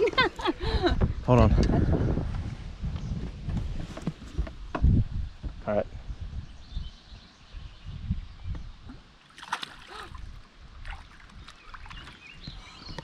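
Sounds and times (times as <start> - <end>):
fish splashing into water: 9.2 - 12.2
water sloshing against boat: 9.2 - 13.0.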